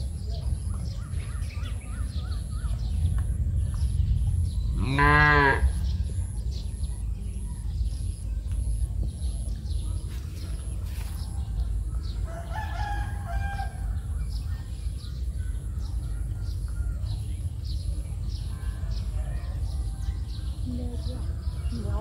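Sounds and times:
steady low rumble: 0:00.0 - 0:22.0
rooster crowing: 0:12.2 - 0:14.0.

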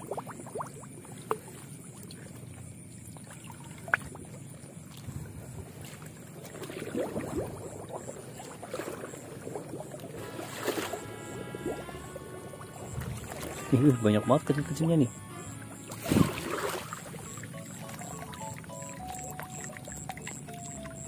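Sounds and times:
net splashing in water: 0:03.1 - 0:20.6.

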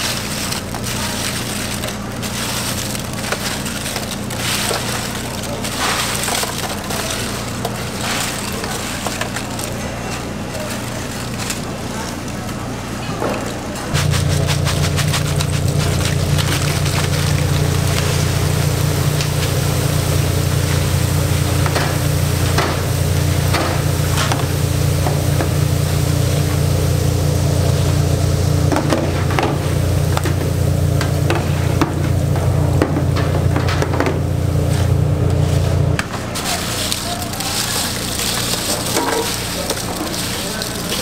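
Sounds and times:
steady low hum: 0:13.8 - 0:41.0
chips sizzling in hot oil: 0:13.9 - 0:31.2, 0:36.3 - 0:41.0.

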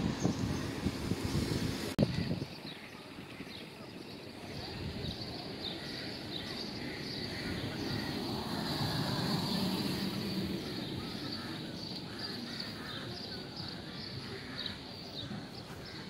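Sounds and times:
street ambience: 0:00.0 - 0:16.0
car driving past: 0:07.2 - 0:11.7.

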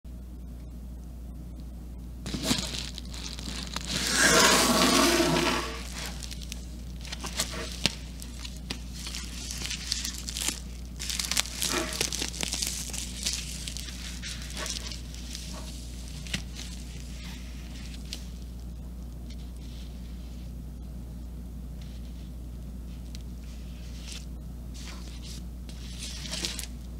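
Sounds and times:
plastic mailer tearing: 0:02.2 - 0:18.2, 0:25.9 - 0:26.7
bubble lining crinkling: 0:02.2 - 0:20.1, 0:22.3 - 0:26.9.

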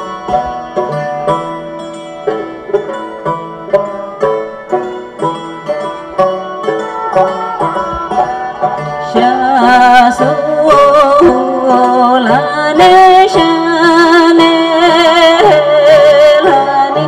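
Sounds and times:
bowed fiddle: 0:00.0 - 0:17.0
hammered dulcimer: 0:00.0 - 0:17.0
plucked lute: 0:00.0 - 0:17.0
woman singing: 0:09.0 - 0:17.0.

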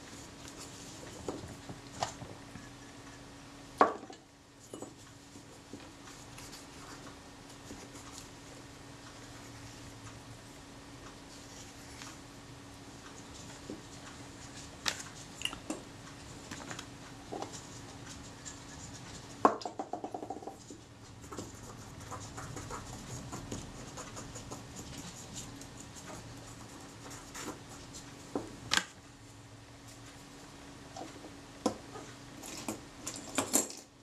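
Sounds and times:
light scratches and taps: 0:13.0 - 0:28.5.

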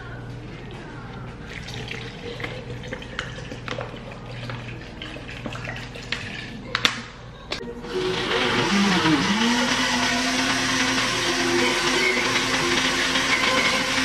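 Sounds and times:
watery sound: 0:01.2 - 0:06.7.

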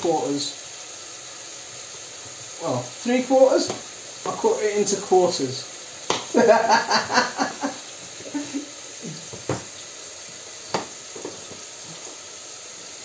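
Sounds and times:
onions sizzling in a pan: 0:00.0 - 0:13.0
knife knocking on cutting board: 0:06.1 - 0:06.3, 0:09.3 - 0:09.7, 0:10.7 - 0:11.5.

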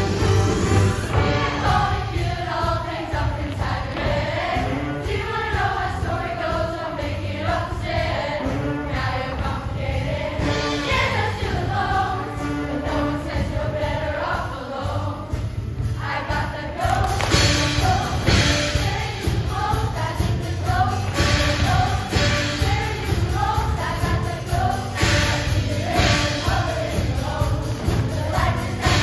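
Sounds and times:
instrumental backing with heavy bass: 0:00.0 - 0:02.6
choir singing: 0:00.0 - 0:29.0.

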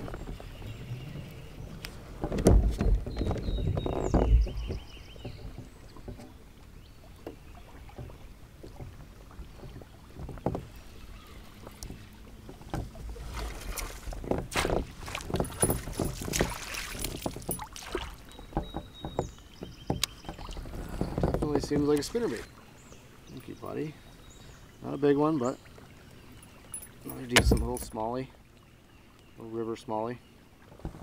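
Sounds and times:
wind on microphone: 0:00.0 - 0:05.8
water splashing: 0:00.0 - 0:24.0
clatter on boat: 0:01.8 - 0:06.4, 0:07.2 - 0:22.5, 0:26.5 - 0:28.2, 0:30.7 - 0:31.0.

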